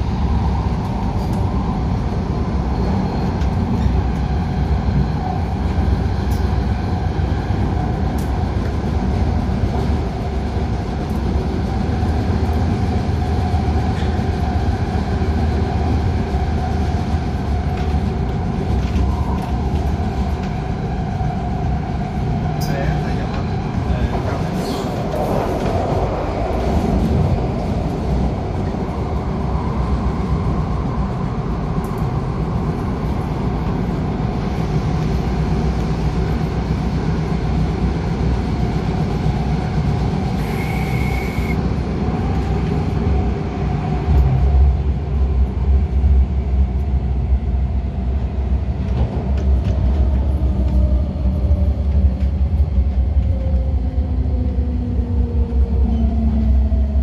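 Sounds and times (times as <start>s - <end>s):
rumble of train wheels on rail: 0.0s - 57.0s
train motor whine: 40.3s - 41.6s.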